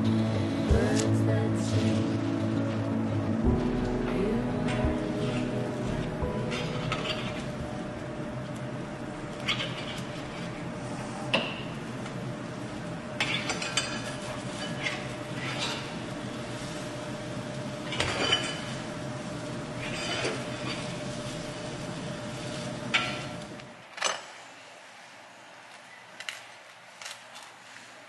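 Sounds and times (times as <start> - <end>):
low hum: 0.0 - 13.2
metal spatula scraping skillet: 9.4 - 10.6, 19.8 - 21.0.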